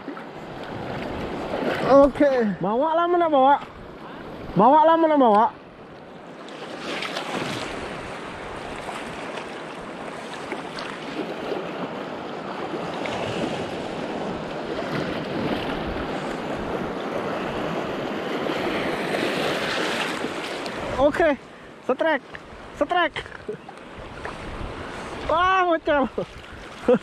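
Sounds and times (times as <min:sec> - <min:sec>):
small waves lapping over reef: 0:00.0 - 0:27.0
wind buffeting microphone: 0:23.9 - 0:26.7.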